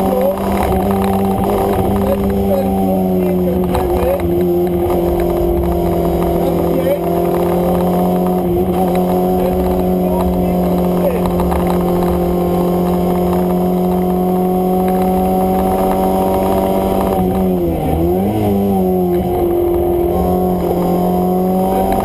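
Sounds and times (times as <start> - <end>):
car engine revving: 0.0 - 22.0.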